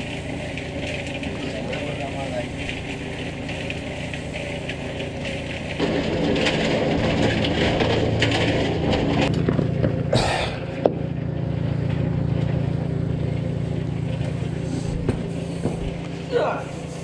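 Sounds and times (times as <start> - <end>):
cement mixer running: 0.0 - 17.0
concrete churning in drum: 0.0 - 17.0.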